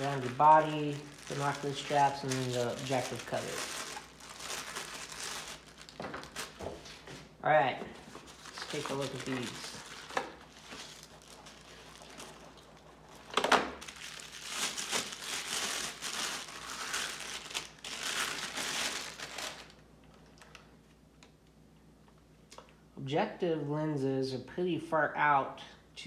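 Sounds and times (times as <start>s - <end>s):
plastic bag crinkling: 0.0s - 7.1s, 7.9s - 20.7s.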